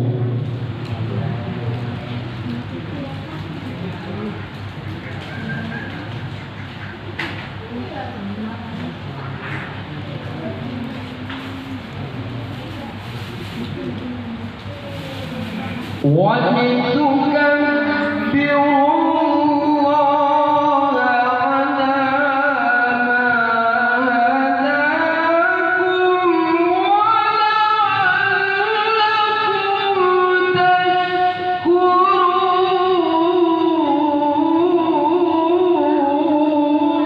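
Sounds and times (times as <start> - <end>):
man chanting through loudspeaker: 15.8 - 37.0.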